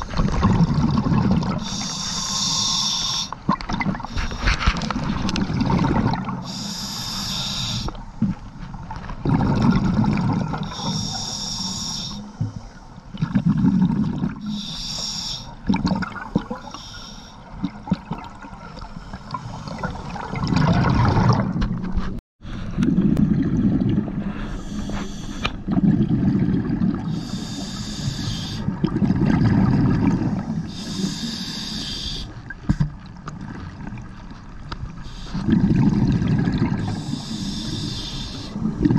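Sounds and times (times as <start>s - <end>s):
bubbling exhale underwater: 0.0s - 2.8s, 3.4s - 6.9s, 9.2s - 11.4s, 13.1s - 14.7s, 17.5s - 21.6s, 22.7s - 31.2s, 35.3s - 38.9s
regulator hissing inhale: 1.6s - 3.4s, 6.4s - 8.0s, 10.6s - 13.0s, 14.4s - 15.6s, 16.6s - 17.5s, 24.3s - 25.6s, 27.1s - 28.6s, 30.5s - 32.4s, 35.0s - 35.5s, 36.8s - 38.6s.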